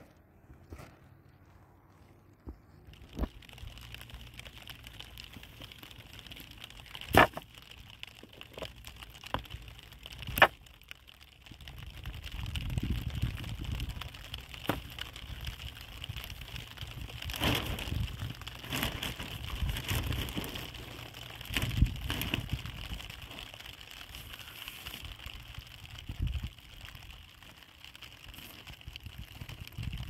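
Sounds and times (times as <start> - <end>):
wind rumble on microphone: 11.5 - 23.4, 24.9 - 27.4, 28.7 - 30.0
plastic sheeting rustling: 12.0 - 30.0.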